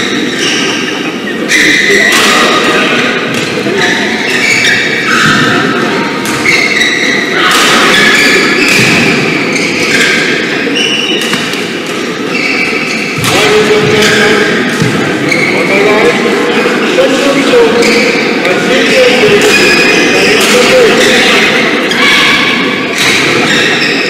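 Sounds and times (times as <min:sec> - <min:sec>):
shoes squeaking on court floor: 0:00.0 - 0:02.6, 0:03.3 - 0:16.0, 0:17.6 - 0:18.6, 0:19.2 - 0:22.1, 0:23.2 - 0:24.0
murmur of voices: 0:00.0 - 0:24.0.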